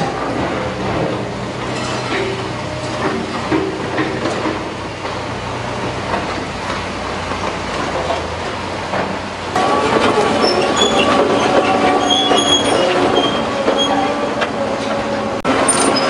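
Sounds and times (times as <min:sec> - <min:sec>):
excavator diesel engine running: 0:00.0 - 0:16.0
steel scraping on steel: 0:01.6 - 0:03.6, 0:09.6 - 0:16.0
metal clanks: 0:01.7 - 0:04.7, 0:15.6 - 0:16.0.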